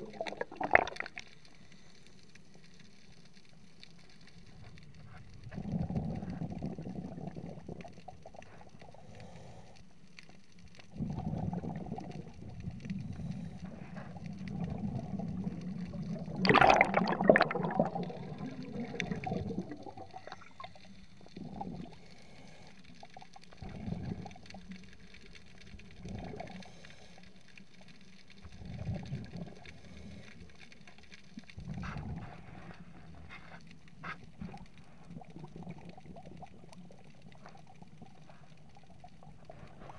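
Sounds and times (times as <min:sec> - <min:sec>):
exhaled breath bubbling underwater: 0:00.0 - 0:01.6, 0:05.4 - 0:09.8, 0:10.8 - 0:24.6, 0:31.5 - 0:39.9.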